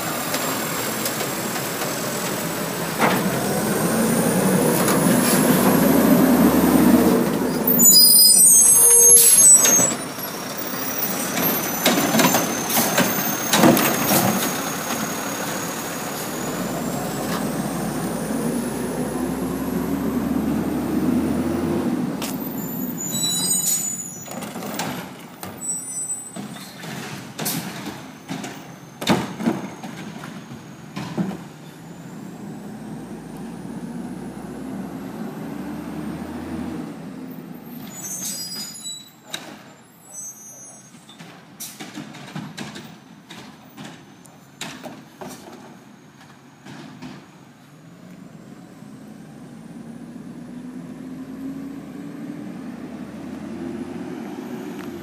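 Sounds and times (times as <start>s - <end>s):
truck diesel engine revving: 0.0s - 7.9s, 10.2s - 23.1s, 31.9s - 37.8s, 48.0s - 55.0s
squealing brakes: 0.2s - 21.4s, 22.2s - 33.2s, 37.2s - 42.0s.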